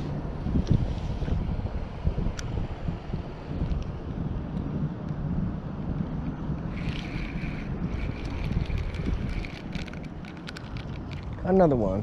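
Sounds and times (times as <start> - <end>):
wind buffeting microphone: 0.0 - 12.0
reel clicks: 5.9 - 11.7
fishing reel whirring: 6.7 - 11.3.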